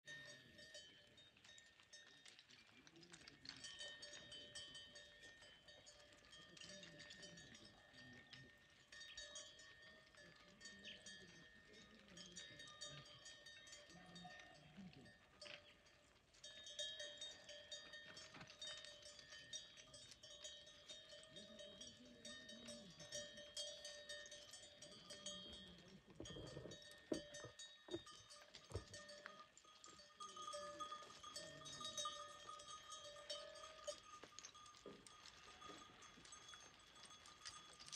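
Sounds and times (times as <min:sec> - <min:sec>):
animal bells clinking: 0:00.0 - 0:37.9
hooves walking on stony ground: 0:00.0 - 0:37.9
goats and sheep bleating: 0:26.2 - 0:37.6.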